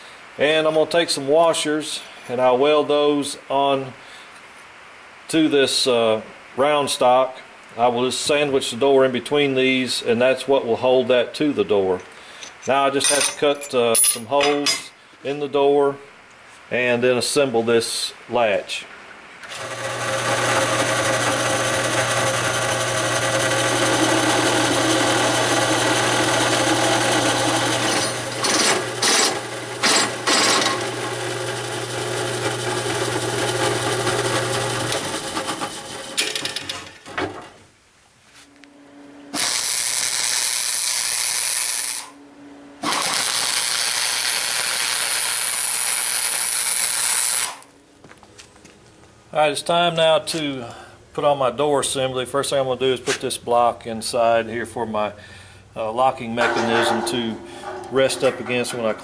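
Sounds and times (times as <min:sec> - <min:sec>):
drill press motor hum: 0:19.4 - 0:36.0, 0:42.8 - 0:47.6
drill bit grinding through steel: 0:19.5 - 0:32.0
arc welder crackling and hissing: 0:39.3 - 0:42.2, 0:42.8 - 0:47.7.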